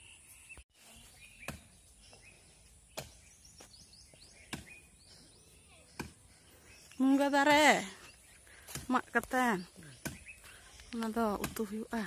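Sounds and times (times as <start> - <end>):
faint high bird chirps: 0.0 - 8.5.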